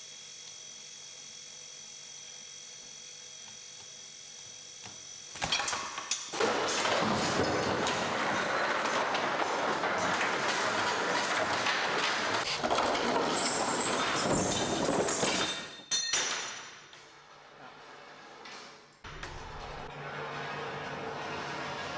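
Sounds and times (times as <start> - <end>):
contraption parts clattering and rumbling: 6.3 - 15.8, 19.1 - 21.9.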